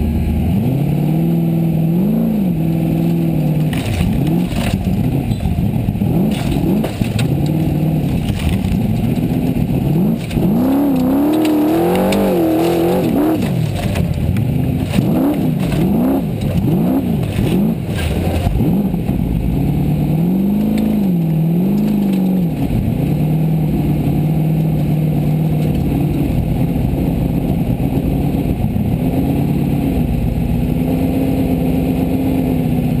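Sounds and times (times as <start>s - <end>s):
buggy engine revving: 0.0s - 33.0s
knocks and rattles: 3.6s - 19.3s.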